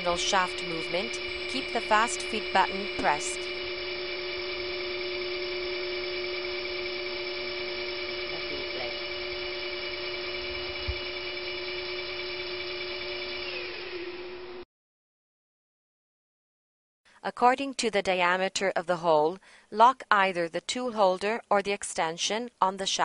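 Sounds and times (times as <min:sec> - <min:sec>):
boring machine drive whining: 0:00.0 - 0:14.6.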